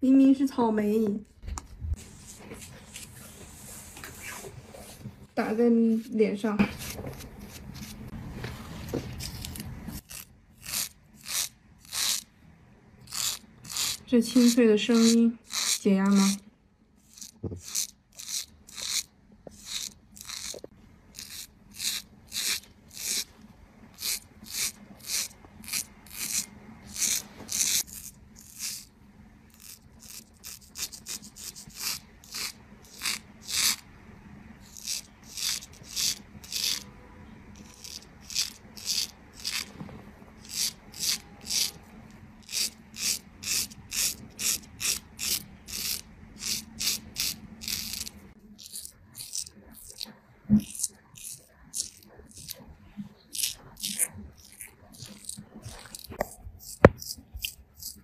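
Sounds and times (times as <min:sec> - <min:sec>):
straight razor scraping stubble: 0:06.7 - 0:08.1, 0:09.1 - 0:12.3, 0:13.0 - 0:16.4, 0:17.0 - 0:23.3, 0:24.0 - 0:28.9, 0:29.5 - 0:33.8, 0:34.6 - 0:36.8, 0:37.6 - 0:39.8, 0:40.4 - 0:41.8, 0:42.4 - 0:52.6, 0:53.2 - 0:58.0.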